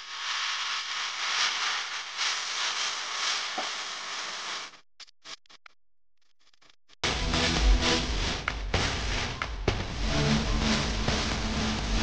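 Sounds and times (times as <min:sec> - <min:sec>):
hot-air gun hissing: 0:00.0 - 0:04.8.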